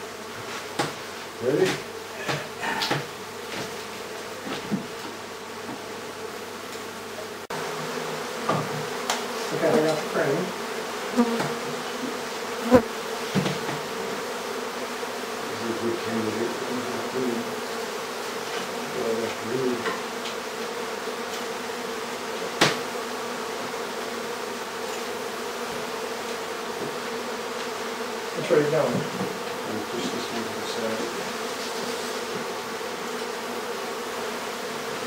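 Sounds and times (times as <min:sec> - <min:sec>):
honeybees buzzing: 0:00.0 - 0:35.0
sharp knocks: 0:08.4 - 0:08.9, 0:22.6 - 0:22.8.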